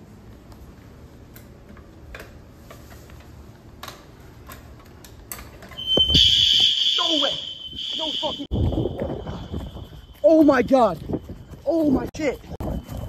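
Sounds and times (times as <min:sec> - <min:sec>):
shrill fire alarm: 0:05.8 - 0:11.6, 0:12.5 - 0:13.0
faint footsteps: 0:08.4 - 0:13.0.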